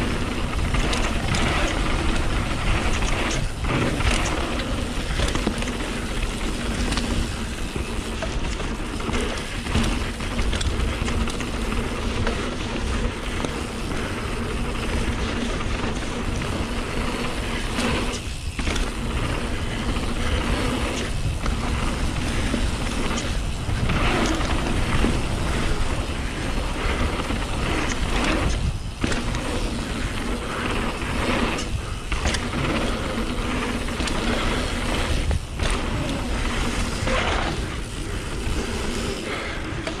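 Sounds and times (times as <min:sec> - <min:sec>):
chain and frame rattle: 0:00.0 - 0:13.8
tyre roar on dirt: 0:00.0 - 0:40.0
wind on camera: 0:00.0 - 0:40.0.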